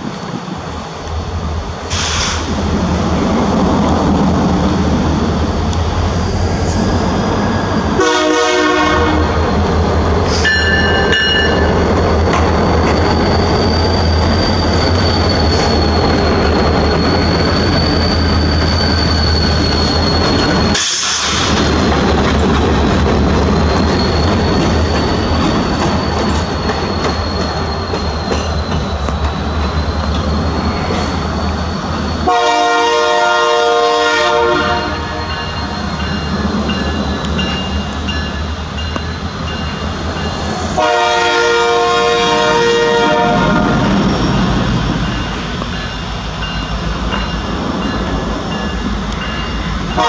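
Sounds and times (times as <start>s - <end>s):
diesel locomotives rumbling: 0.0s - 50.0s
locomotive horn: 7.9s - 9.5s, 32.2s - 35.4s, 40.8s - 44.0s
high wheel squeal: 9.4s - 21.6s, 23.3s - 33.0s, 35.0s - 41.0s, 41.7s - 50.0s.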